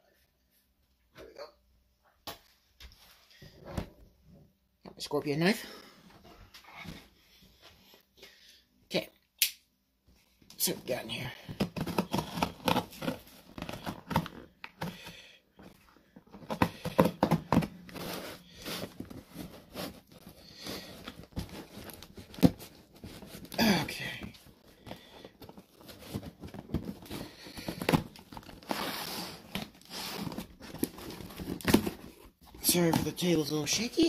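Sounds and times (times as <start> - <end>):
cardboard crinkling and scraping: 10.6 - 34.0.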